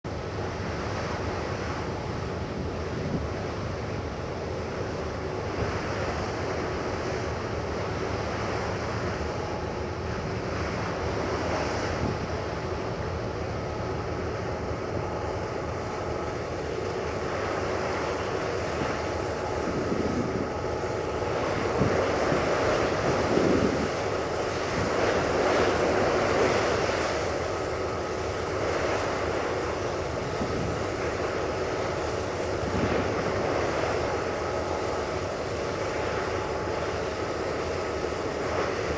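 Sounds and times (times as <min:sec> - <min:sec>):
choppy breaking water: 0:00.4 - 0:38.9
wind buffeting microphone: 0:16.8 - 0:27.3, 0:30.0 - 0:31.4, 0:32.4 - 0:33.9.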